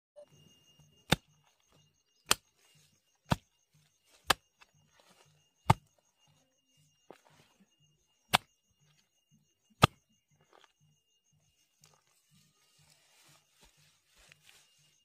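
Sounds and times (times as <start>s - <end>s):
hoe chopping into soil: 2.2s - 2.6s, 5.6s - 5.9s.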